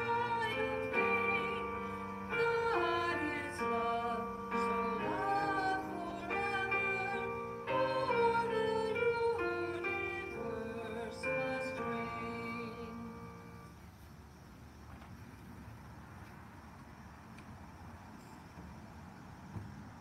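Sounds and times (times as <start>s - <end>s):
hymn singing: 0.0s - 13.8s.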